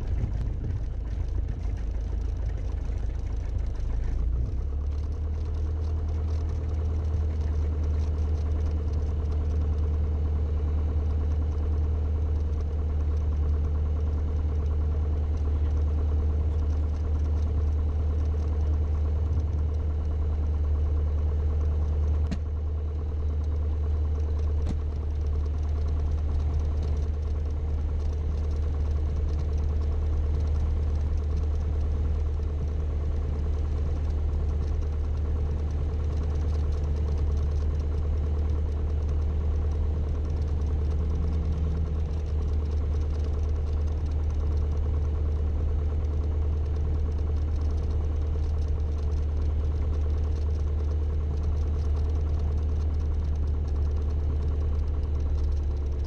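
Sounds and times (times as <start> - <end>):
aircraft engine and propeller: 0.0 - 56.0
faint clicks: 0.1 - 9.9, 33.4 - 44.8, 46.3 - 56.0.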